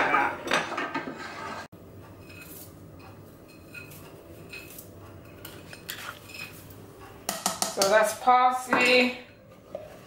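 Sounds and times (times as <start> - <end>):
dish and utensils clinking: 2.2 - 6.7.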